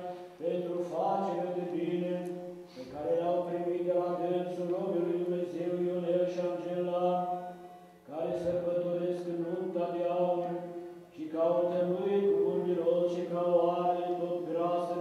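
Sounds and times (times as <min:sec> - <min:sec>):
man chanting: 0:00.0 - 0:15.0.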